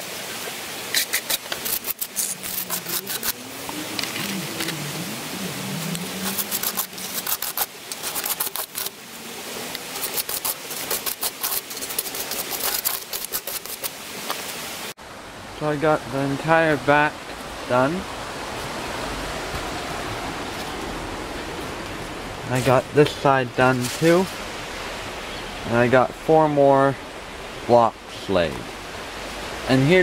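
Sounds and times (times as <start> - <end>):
sharp clicks of trowel: 0.9 - 3.4, 10.0 - 13.9
trowel scraping mortar: 0.9 - 3.4, 5.9 - 9.0, 9.7 - 14.0.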